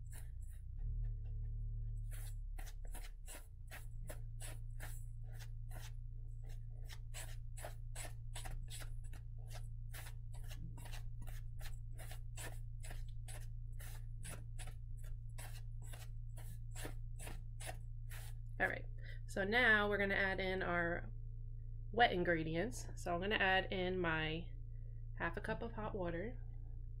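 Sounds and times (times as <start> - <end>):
low hum: 0.0 - 27.0
spatula scraping metal bowl: 2.0 - 18.4.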